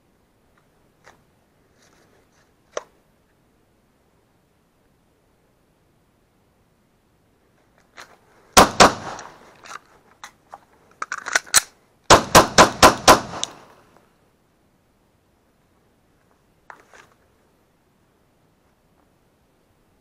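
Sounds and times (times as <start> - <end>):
pistol shots: 8.6 - 9.4, 12.1 - 13.7.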